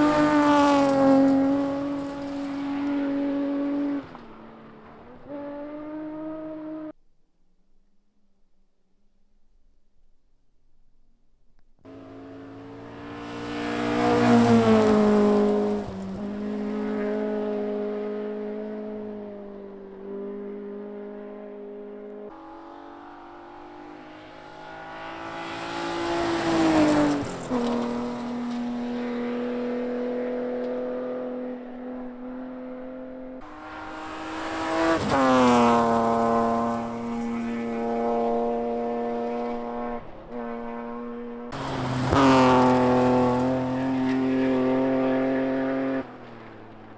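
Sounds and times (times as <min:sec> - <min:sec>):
rally cars racing past: 0:00.0 - 0:07.0, 0:11.9 - 0:46.9.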